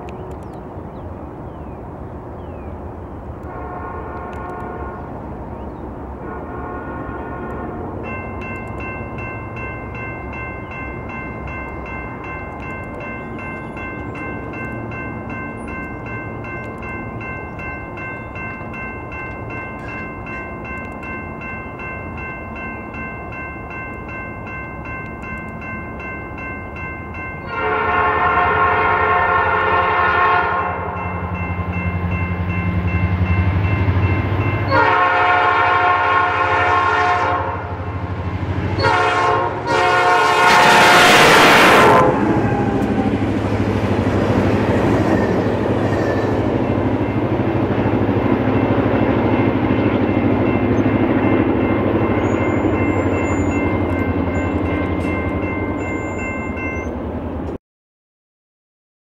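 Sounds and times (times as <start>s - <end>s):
locomotive engine rumbling: 0.0s - 57.6s
train rolling past: 0.0s - 57.6s
locomotive air horn blasts: 3.4s - 5.3s, 6.2s - 8.1s, 27.5s - 31.1s, 34.6s - 37.9s, 38.6s - 42.5s
railroad crossing bell ringing: 6.2s - 57.6s.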